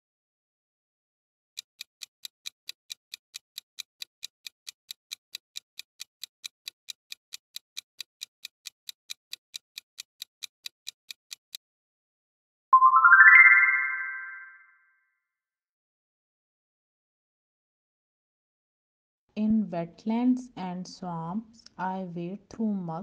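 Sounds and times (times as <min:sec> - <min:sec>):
clock ticking: 0:01.6 - 0:11.6
bright chime rising in pitch: 0:12.8 - 0:14.7.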